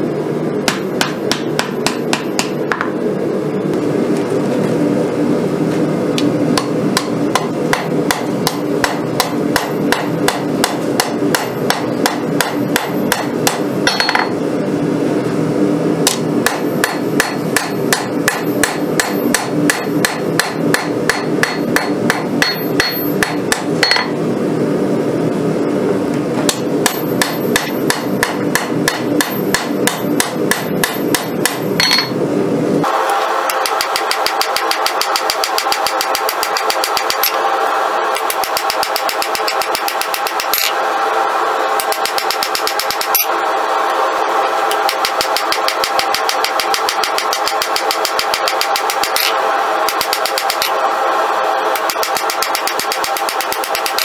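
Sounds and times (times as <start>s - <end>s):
steady low hum: 0.0s - 54.0s
hammer striking hot steel on anvil: 0.6s - 3.0s, 6.2s - 14.4s, 16.0s - 24.2s, 26.5s - 32.2s, 33.5s - 37.4s, 38.1s - 40.8s, 41.8s - 43.3s, 44.7s - 50.8s, 51.7s - 54.0s.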